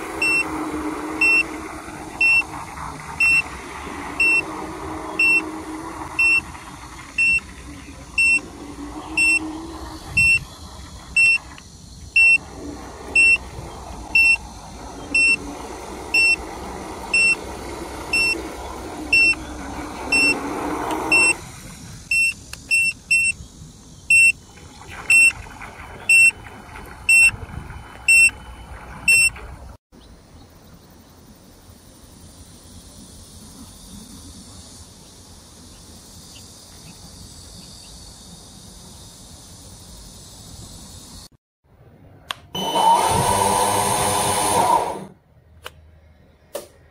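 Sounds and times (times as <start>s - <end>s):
electronic beeper short high beeps: 8.2s - 8.4s.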